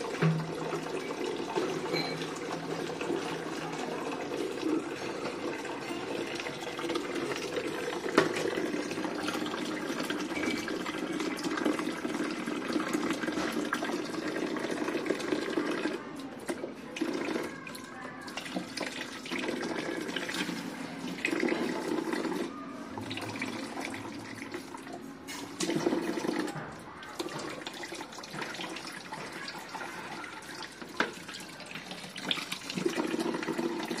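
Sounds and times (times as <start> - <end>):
tap water filling bucket: 0.0 - 34.0.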